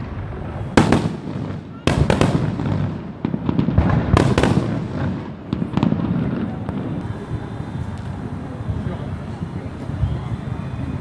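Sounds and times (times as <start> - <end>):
fireworks bursting with echo: 0.0 - 11.0.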